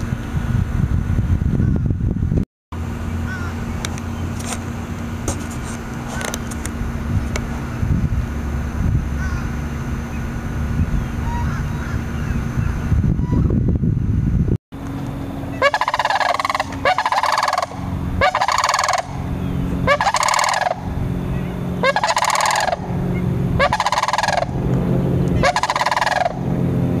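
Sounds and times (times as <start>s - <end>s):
cranes rattling bugle calls: 3.2s - 3.7s, 5.4s - 6.6s, 9.2s - 9.6s, 11.2s - 12.4s, 15.4s - 26.5s.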